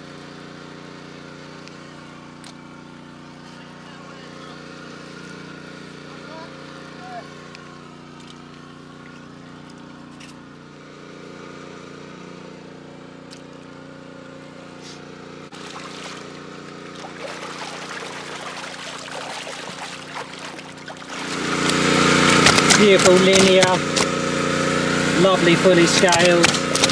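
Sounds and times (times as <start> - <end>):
water pump running: 0.0 - 26.9
fish splashing in water: 15.5 - 24.2.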